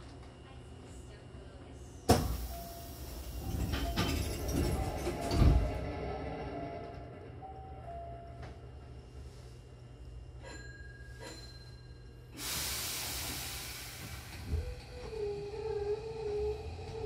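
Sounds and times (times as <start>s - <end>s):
compressed air hiss: 12.4s - 14.5s.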